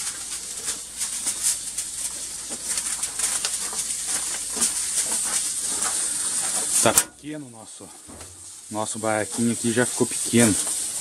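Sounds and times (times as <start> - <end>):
steady hiss: 0.0 - 11.0.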